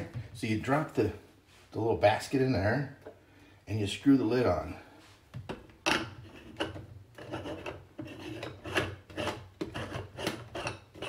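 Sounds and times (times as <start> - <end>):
threads scraping and rasping: 6.2 - 11.0.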